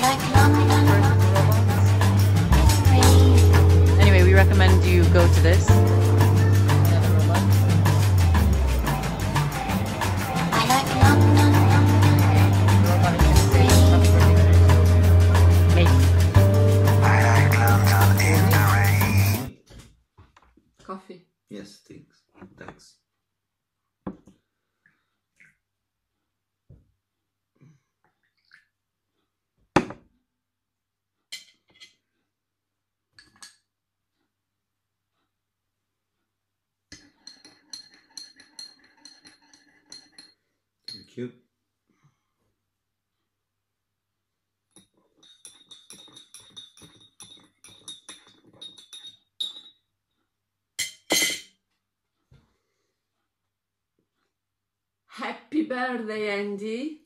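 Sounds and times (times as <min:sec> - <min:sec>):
light metal clinks: 0:44.8 - 0:49.8.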